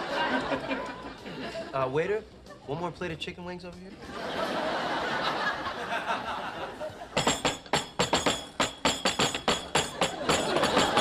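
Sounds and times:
studio audience laughing: 0.0s - 1.7s, 4.0s - 7.2s, 10.0s - 11.0s
music cue with percussive beats: 7.1s - 11.0s.

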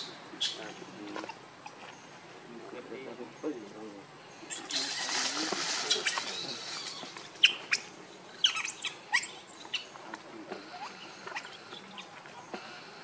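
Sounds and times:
baby monkey squeaking cries: 4.5s - 9.9s.

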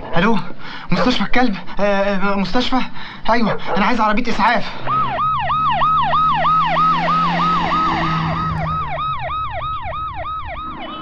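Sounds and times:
ambulance siren yelping: 4.6s - 11.0s.

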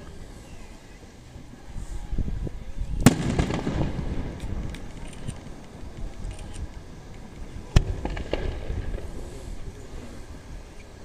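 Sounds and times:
firework shells bursting: 3.0s - 11.0s
small firework pops: 3.0s - 11.0s.

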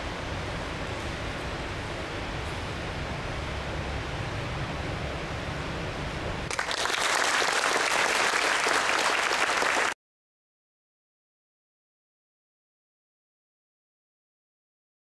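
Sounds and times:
low room hum: 0.0s - 10.0s
audience applauding: 6.5s - 10.0s.

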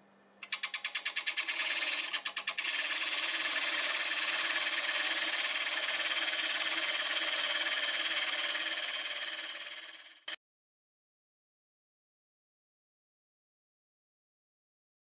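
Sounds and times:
lathe blade scraping wood: 0.4s - 10.4s.

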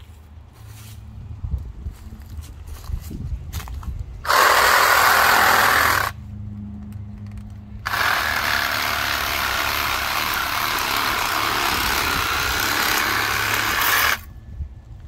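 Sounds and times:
cordless power saw cutting stalks: 4.2s - 6.2s, 7.8s - 14.3s.

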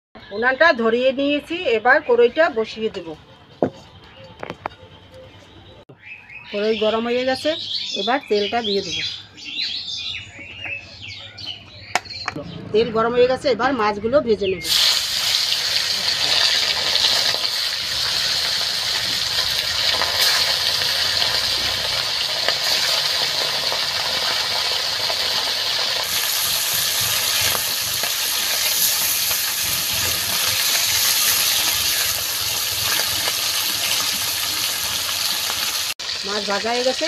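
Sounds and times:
fish frying in hot oil: 14.7s - 37.0s.

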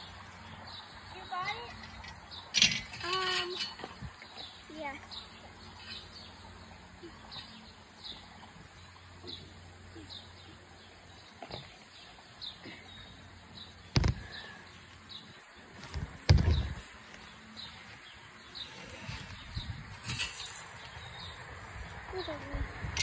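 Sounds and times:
bird chirping: 0.0s - 23.0s
loud thumps: 16.0s - 16.8s.

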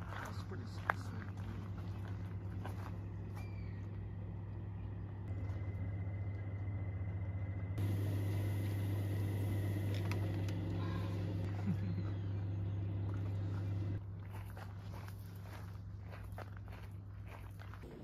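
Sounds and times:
hot tub pump motor humming: 1.6s - 15.0s.

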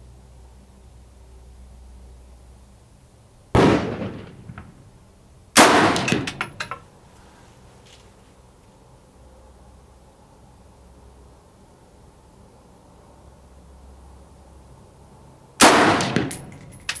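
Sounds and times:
rifle shots ringing: 3.6s - 5.0s, 5.6s - 6.8s, 15.6s - 17.0s.

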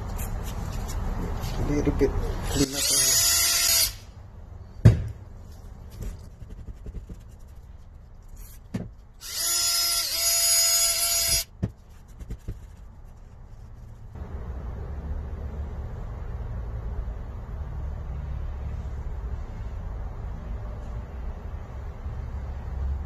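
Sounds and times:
power drill with wire brush: 2.5s - 4.0s, 9.2s - 11.5s.

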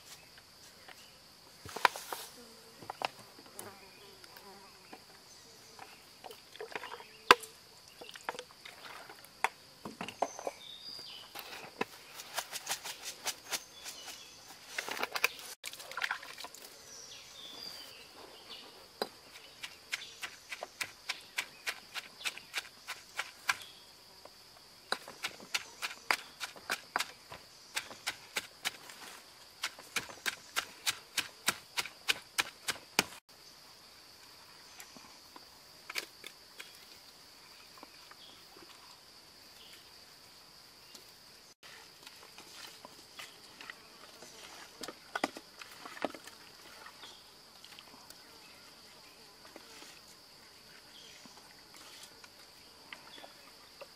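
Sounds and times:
high insect drone: 0.0s - 6.2s.

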